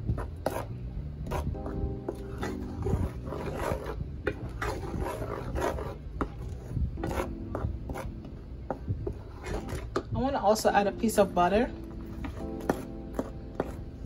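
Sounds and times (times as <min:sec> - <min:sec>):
wooden spoon stirring thick sauce: 0:01.3 - 0:10.1.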